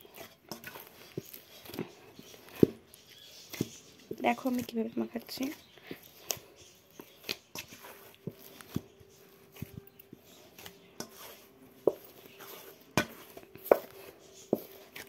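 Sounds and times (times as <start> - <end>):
dough kneaded in steel bowl: 0.0 - 15.0.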